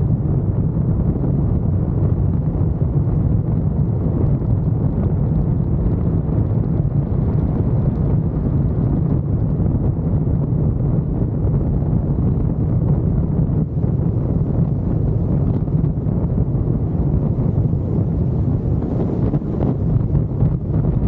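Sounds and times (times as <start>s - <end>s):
car road noise rumble: 0.0s - 21.0s
wind buffeting microphone: 0.0s - 21.0s.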